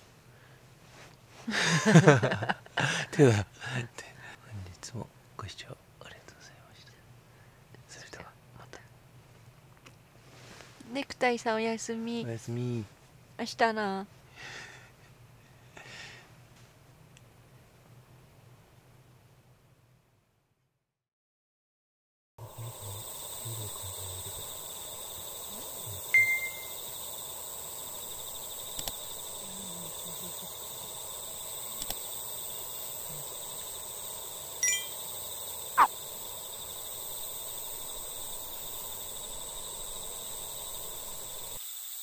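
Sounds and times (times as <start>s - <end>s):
high-pitched insect drone: 22.4s - 42.0s
short clinks and ticks: 31.8s - 32.0s.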